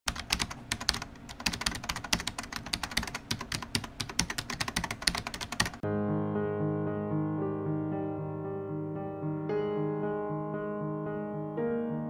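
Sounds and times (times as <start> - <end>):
keyboard typing clicks: 0.1 - 5.8
piano music: 4.3 - 12.0.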